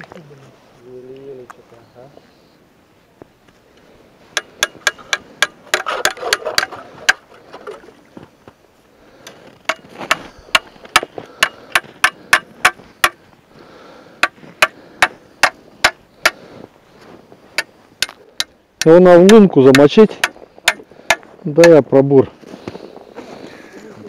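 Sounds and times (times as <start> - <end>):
rough scraping: 4.2 - 8.3, 9.1 - 13.3.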